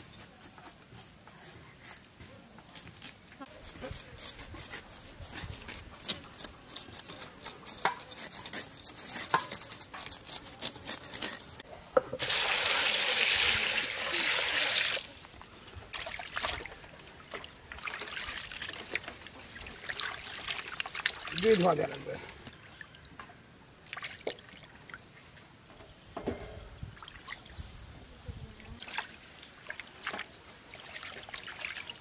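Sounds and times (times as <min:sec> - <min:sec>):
water pouring in a stream: 0:12.2 - 0:22.0, 0:28.8 - 0:32.0.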